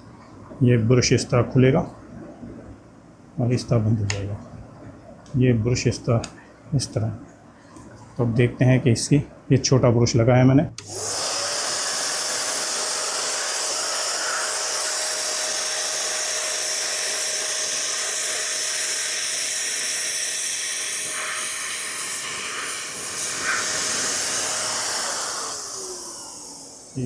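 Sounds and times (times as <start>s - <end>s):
vacuum cleaner running: 10.8s - 27.0s.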